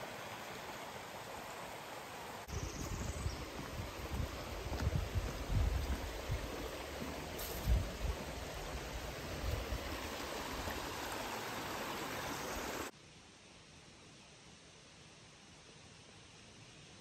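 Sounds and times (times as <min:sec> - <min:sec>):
creek water rushing: 0:00.0 - 0:12.9.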